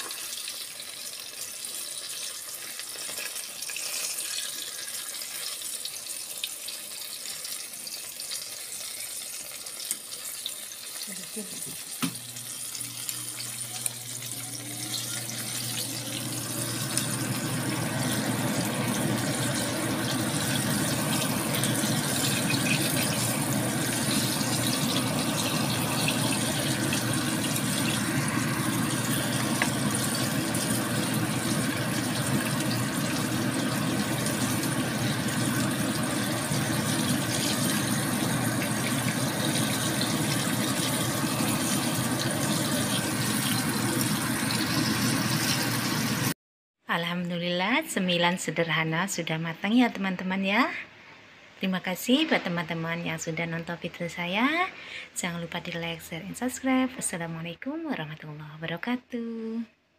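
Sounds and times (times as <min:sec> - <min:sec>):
oil sizzling in a frying pan: 0:00.0 - 0:46.4.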